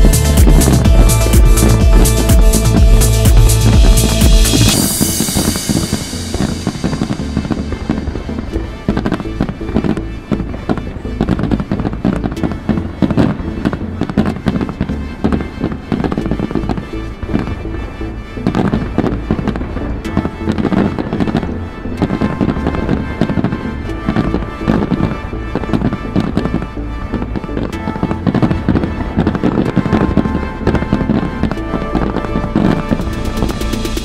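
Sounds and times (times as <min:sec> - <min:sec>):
fireworks crackling and popping: 0:00.0 - 0:17.6, 0:18.4 - 0:34.0
loud firework bang: 0:03.4 - 0:08.2.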